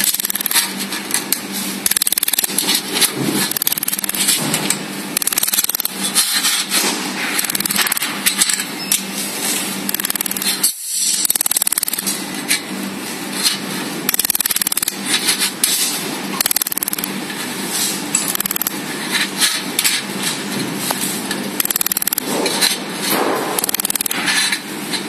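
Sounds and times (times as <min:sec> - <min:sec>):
laser welder rapid ticks: 0:00.0 - 0:04.4, 0:05.1 - 0:06.6, 0:07.4 - 0:08.6, 0:09.8 - 0:12.2, 0:14.1 - 0:15.4, 0:16.4 - 0:17.2, 0:18.2 - 0:18.8, 0:21.6 - 0:24.5.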